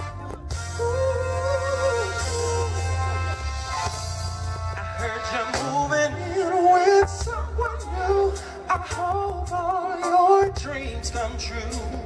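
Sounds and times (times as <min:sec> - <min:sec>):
band with keyboards and bass: 0:00.0 - 0:12.0
man singing into microphone: 0:04.8 - 0:12.0.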